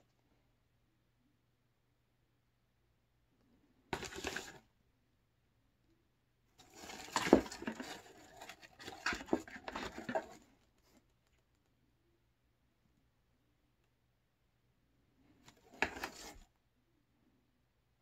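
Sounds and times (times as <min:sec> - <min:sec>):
paper packing rustling and crinkling: 0:04.0 - 0:04.6, 0:06.6 - 0:10.4.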